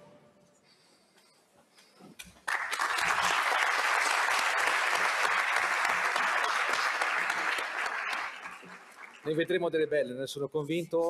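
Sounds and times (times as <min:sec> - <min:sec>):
audience applauding: 0:02.4 - 0:09.4.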